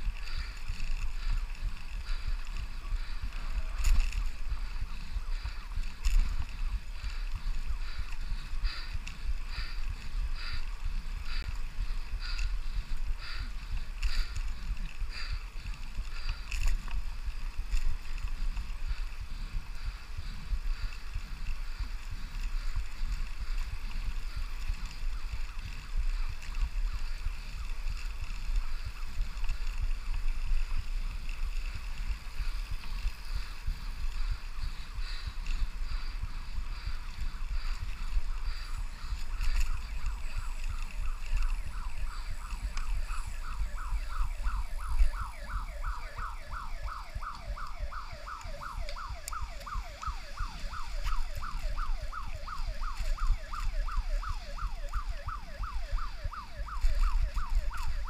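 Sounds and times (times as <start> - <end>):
wind buffeting microphone: 0.0 - 58.0
ambulance siren yelping: 30.8 - 58.0.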